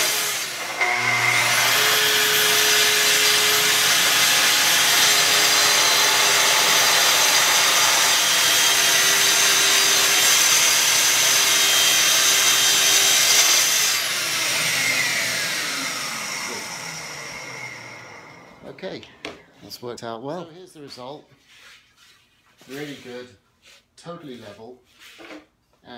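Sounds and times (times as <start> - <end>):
saw motor winding down: 0.0 - 18.7
circular saw cutting wood: 0.0 - 18.8.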